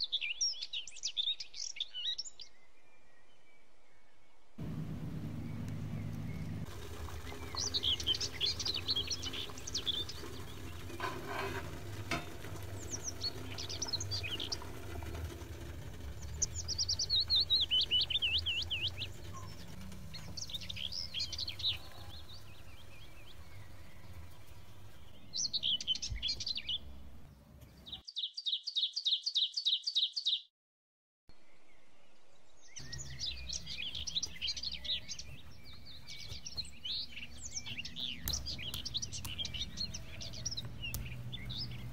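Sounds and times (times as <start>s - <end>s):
songbirds chirping and warbling: 0.0s - 30.5s, 31.3s - 41.9s
low steady hum: 4.6s - 25.3s
fast trill of chirps: 5.3s - 24.6s.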